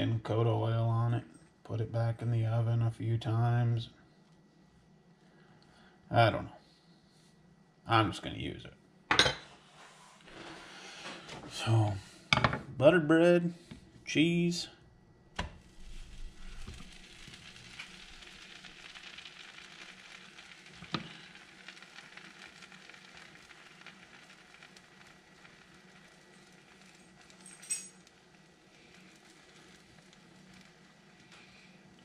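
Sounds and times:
bread sizzling in a skillet: 0:15.4 - 0:32.0.

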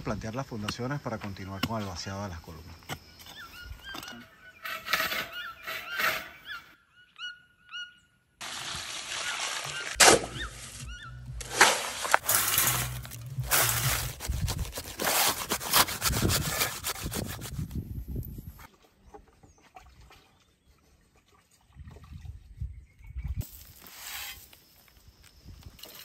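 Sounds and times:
birds chirping: 0:00.2 - 0:08.4, 0:09.2 - 0:11.4
digging bar striking stony soil: 0:09.9 - 0:17.5
metal bar packing wet concrete: 0:11.4 - 0:17.6.

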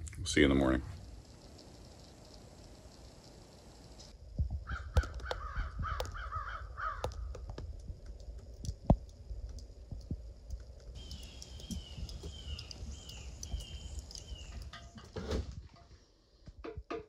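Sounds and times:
crow cawing: 0:04.6 - 0:07.4
sharp clicks and taps: 0:04.9 - 0:06.2, 0:07.0 - 0:15.2.

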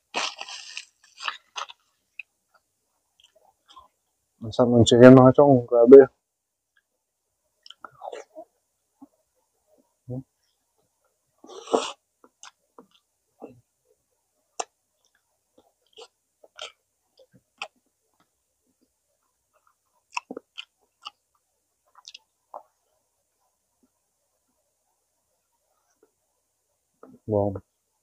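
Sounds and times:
person chewing with smacks: 0:00.1 - 0:02.6, 0:07.6 - 0:08.4, 0:14.6 - 0:18.3, 0:19.5 - 0:22.8.

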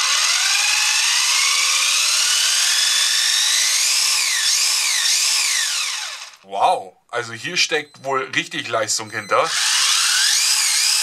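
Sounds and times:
toy car electric motor whining: 0:00.0 - 0:06.4, 0:09.0 - 0:11.0.

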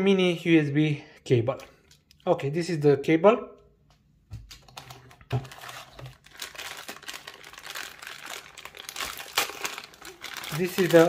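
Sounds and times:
plastic bag crinkling: 0:04.5 - 0:11.0.

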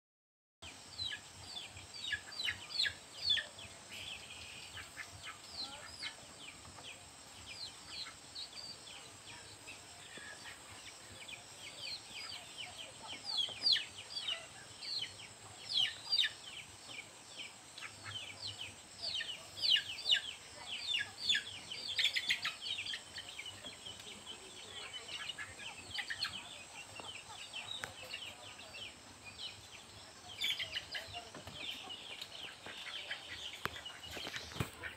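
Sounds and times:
chickens chirping: 0:00.6 - 0:34.9.

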